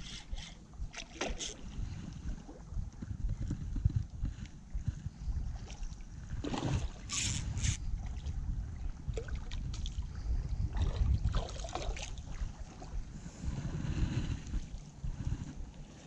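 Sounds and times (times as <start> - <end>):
rustling of fishing gear: 0.0 - 8.1
wind buffeting microphone: 0.0 - 16.0.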